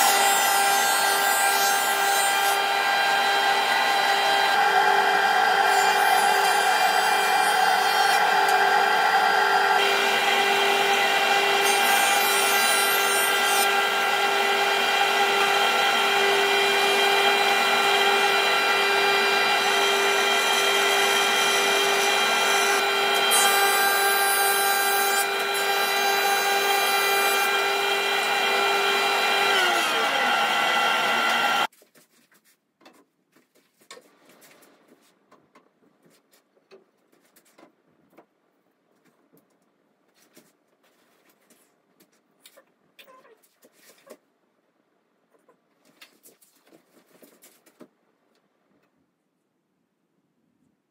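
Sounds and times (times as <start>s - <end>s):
wood being planed: 0.0s - 31.7s
jointer-planer running: 2.3s - 31.7s
motor winding down: 27.5s - 31.7s.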